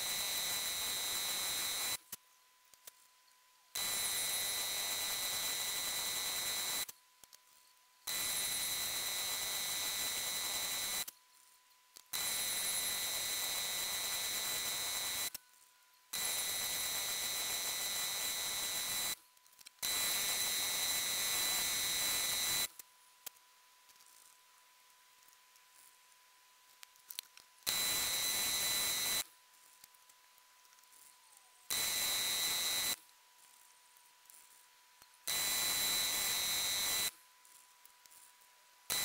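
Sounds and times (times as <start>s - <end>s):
drill boring into metal: 27.7s - 29.2s, 31.7s - 33.0s, 35.3s - 37.1s.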